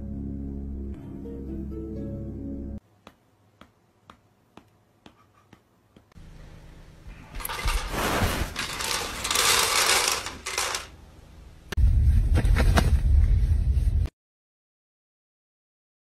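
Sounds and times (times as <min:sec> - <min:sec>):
dry kibble clattering: 0:07.4 - 0:10.9.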